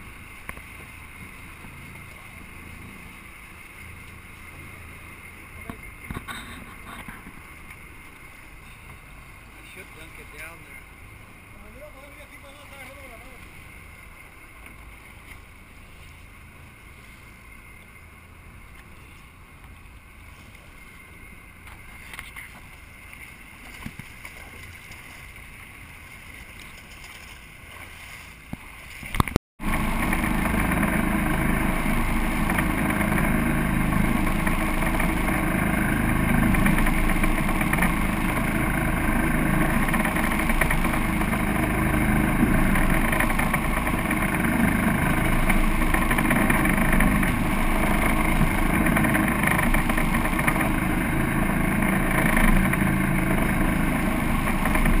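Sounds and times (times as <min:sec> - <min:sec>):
boat engine: 0:00.0 - 0:55.0
water washing against hull: 0:22.7 - 0:55.0.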